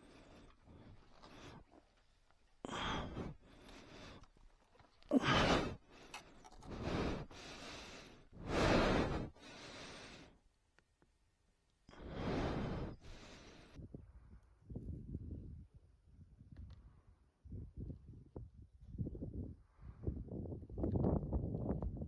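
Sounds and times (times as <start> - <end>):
person breathing hard: 2.6 - 4.4, 5.0 - 10.4, 11.9 - 13.8.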